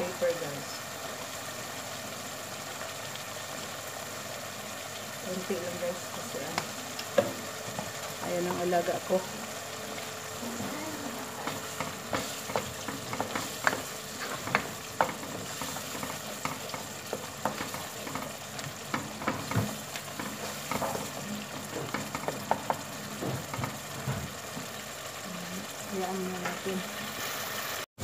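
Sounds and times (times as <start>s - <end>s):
tomato mixture sizzling in pot: 0.0s - 27.9s
spatula scraping and tapping pot: 11.4s - 24.8s.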